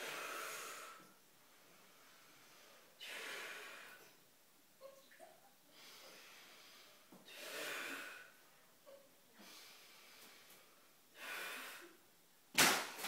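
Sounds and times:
rubber glove bursting crack: 12.5s - 13.0s.

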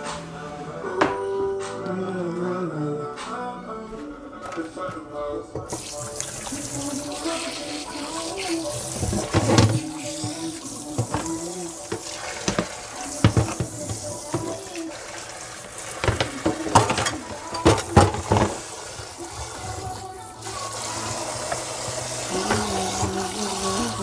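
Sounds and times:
tap running into a sink: 5.6s - 14.9s, 15.8s - 24.0s
knocks and clatters of vegetables: 11.0s - 14.6s, 16.0s - 18.7s.

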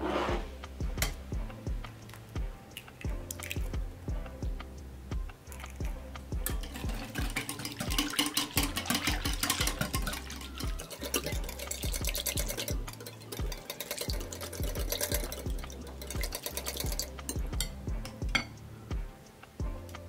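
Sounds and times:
wire whisk clicking against glass bowl: 6.7s - 17.7s.

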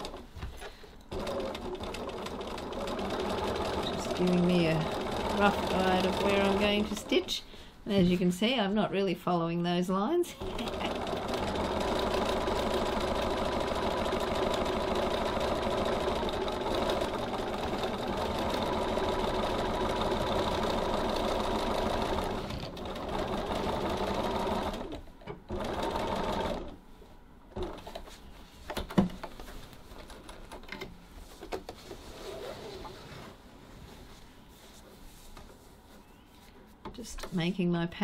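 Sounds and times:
sewing machine stitching: 0.0s - 0.2s, 1.1s - 7.3s, 10.4s - 26.8s.

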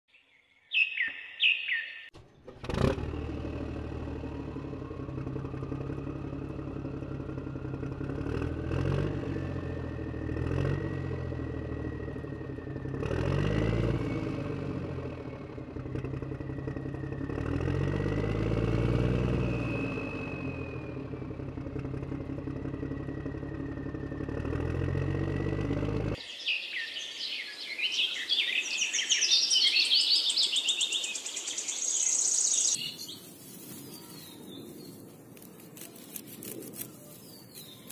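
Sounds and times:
birds chirping: 0.1s - 2.5s, 25.7s - 37.9s.

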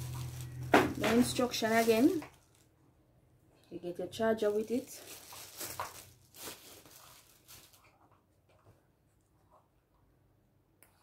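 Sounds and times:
plastic wrapping crinkling: 0.0s - 2.8s, 4.2s - 8.2s.

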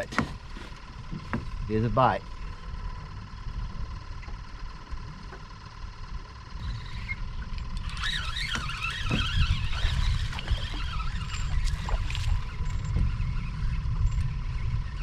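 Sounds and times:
wind buffeting microphone: 7.8s - 15.0s.

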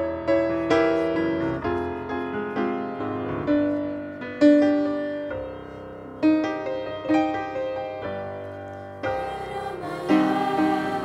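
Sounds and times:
grand piano played slowly: 0.0s - 11.0s.

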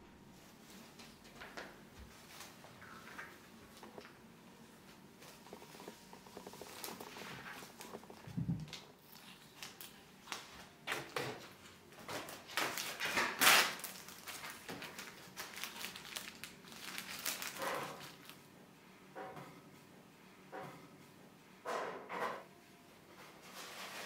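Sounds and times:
plastic wrap crinkling: 5.2s - 10.5s, 12.0s - 18.4s.

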